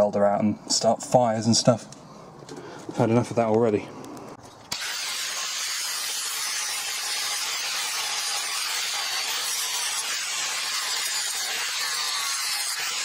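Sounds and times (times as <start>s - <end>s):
angle grinder cutting steel: 4.7s - 13.0s.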